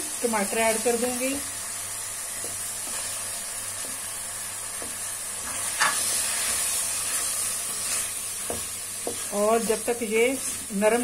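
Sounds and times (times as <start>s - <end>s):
food sizzling in hot oil: 0.0s - 11.0s
wooden spoon scraping a pan: 4.7s - 11.0s.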